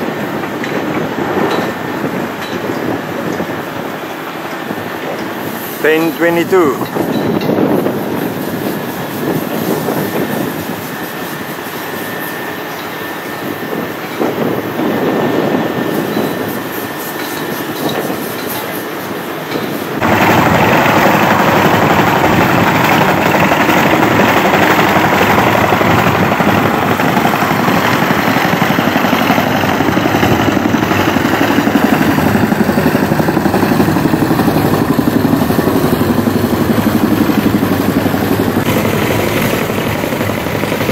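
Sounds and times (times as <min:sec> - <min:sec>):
construction site background noise: 0:00.0 - 0:21.7.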